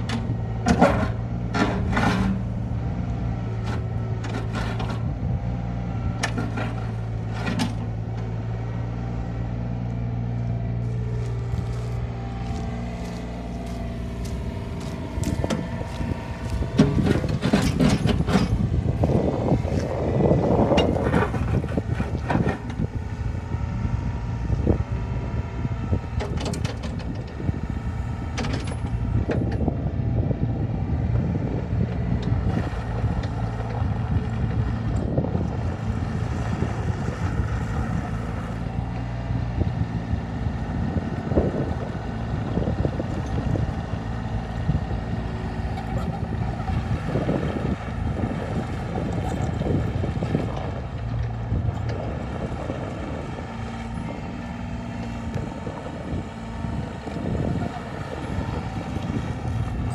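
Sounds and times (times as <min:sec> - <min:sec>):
excavator diesel engine: 0:00.0 - 0:59.9
tracks crunching on gravel: 0:10.8 - 0:17.6.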